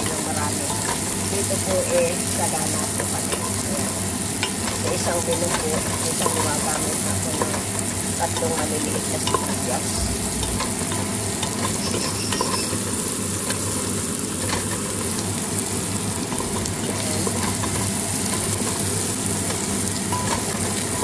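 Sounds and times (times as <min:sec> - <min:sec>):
onions sizzling in hot oil: 0:00.0 - 0:21.0
spatula scraping a pot: 0:10.6 - 0:12.9.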